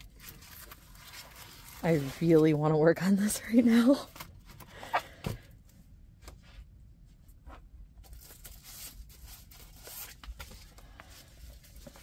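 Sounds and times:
packaging rustling: 0.0s - 2.6s.

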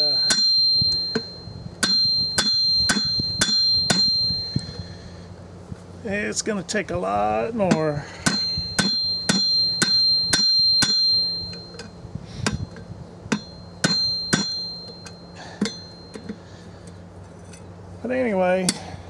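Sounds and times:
hammer striking steel on anvil: 0.0s - 4.8s, 7.7s - 16.4s
anvil ringing: 0.0s - 5.0s, 7.7s - 16.4s.

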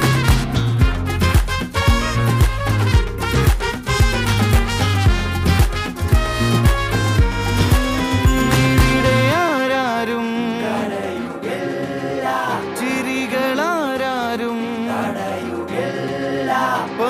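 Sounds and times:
person singing ornamented melody: 8.3s - 17.0s.

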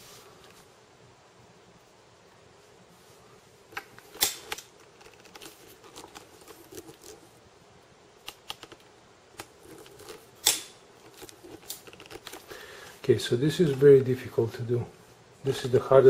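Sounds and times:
handling clicks and knocks: 3.7s - 7.2s, 8.2s - 12.6s.

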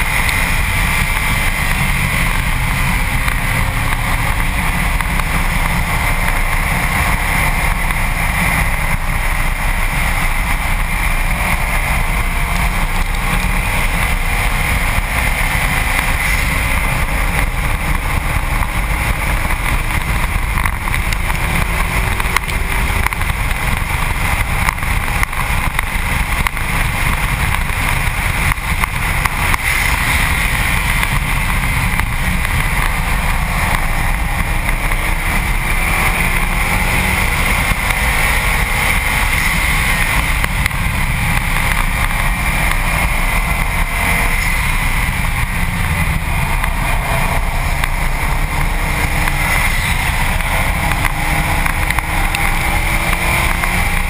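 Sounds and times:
road roar: 0.0s - 54.0s
wind rush: 0.0s - 54.0s.

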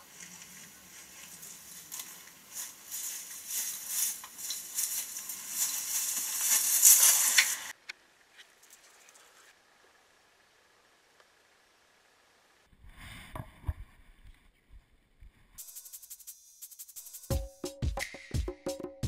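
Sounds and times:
faint rustles and ticks: 0.0s - 7.5s
footsteps through dry grass: 0.0s - 7.7s.

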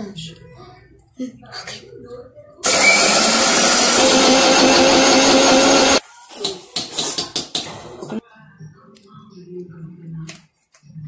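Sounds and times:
mixer grinder motor whining: 2.6s - 6.0s.

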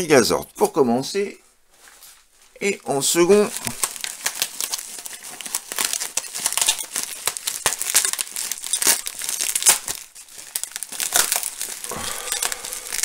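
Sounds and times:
bubble wrap crinkling: 1.8s - 13.0s
tape peeling: 3.5s - 13.0s.

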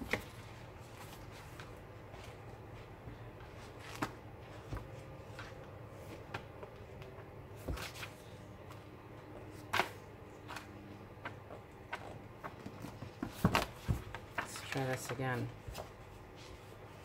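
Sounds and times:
book pages turning: 3.4s - 8.8s, 9.4s - 17.0s.

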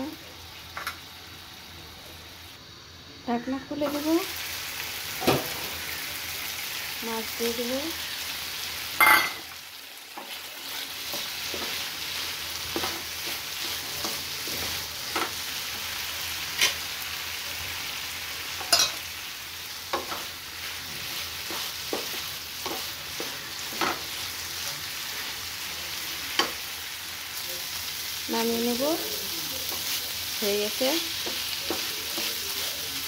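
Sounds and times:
food sizzling in a frying pan: 0.0s - 33.0s.

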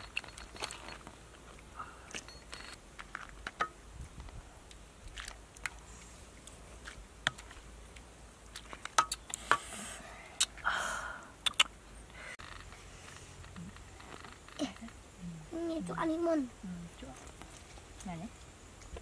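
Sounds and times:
sharp clicks and taps: 11.4s - 11.7s.

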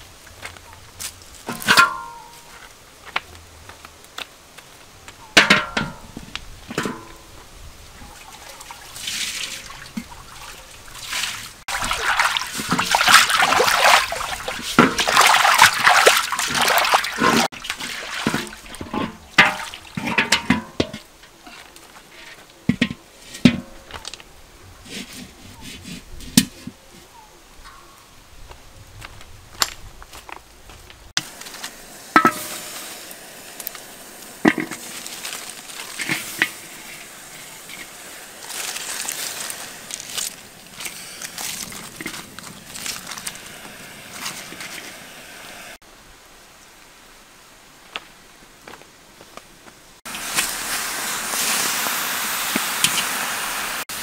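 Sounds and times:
wok knocking and clanking: 1.5s - 2.3s, 5.4s - 7.2s, 18.2s - 21.1s, 32.1s - 32.6s, 34.4s - 35.0s
water sloshing in a metal wok: 8.0s - 21.3s, 31.6s - 45.0s.

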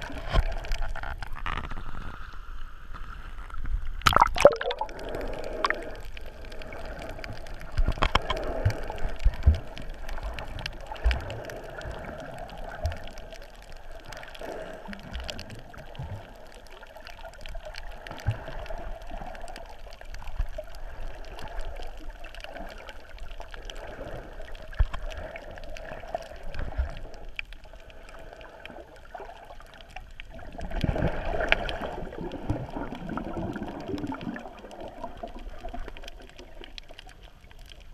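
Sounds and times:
muffled underwater water noise: 0.0s - 37.9s.

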